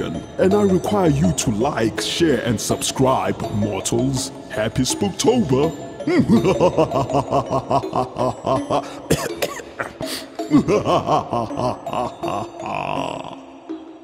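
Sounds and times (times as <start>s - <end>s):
man laughing in rapid bursts: 6.1s - 13.5s.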